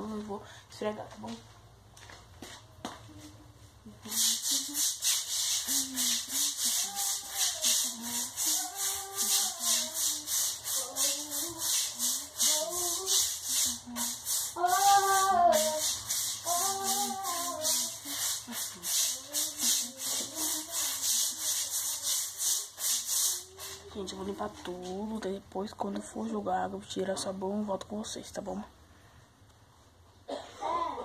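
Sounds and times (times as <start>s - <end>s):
bristles scrubbing wet floor: 4.0s - 25.1s.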